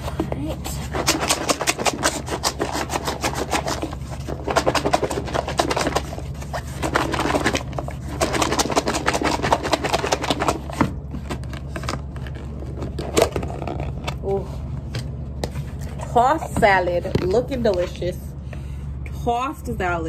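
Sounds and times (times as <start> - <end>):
salad rattling in shaken container: 1.0 - 10.7.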